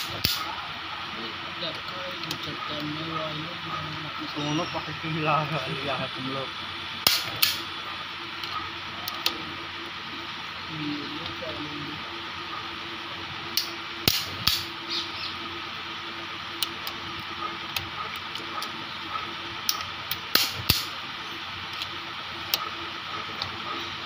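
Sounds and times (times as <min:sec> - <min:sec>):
torque wrench clicks: 0:00.0 - 0:00.4, 0:07.0 - 0:07.6, 0:13.6 - 0:14.7, 0:19.7 - 0:20.9.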